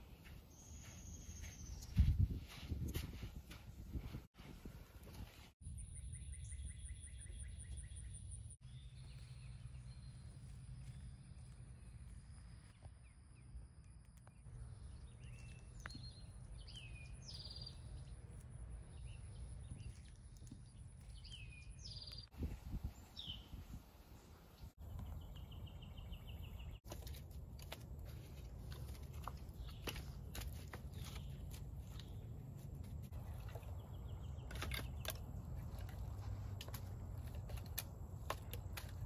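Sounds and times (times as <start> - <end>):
bird chirps: 5.6 - 12.0, 14.2 - 22.3.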